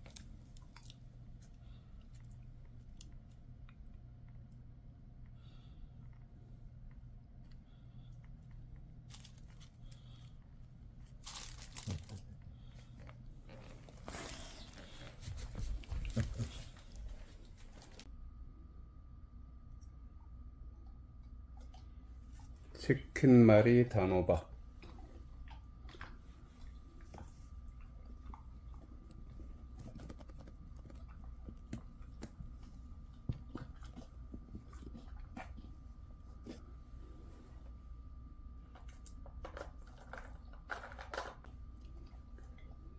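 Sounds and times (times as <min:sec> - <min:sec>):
crinkly material rustling: 0:09.1 - 0:09.9, 0:11.0 - 0:18.1
dog chewing with wet crunching: 0:24.6 - 0:36.9.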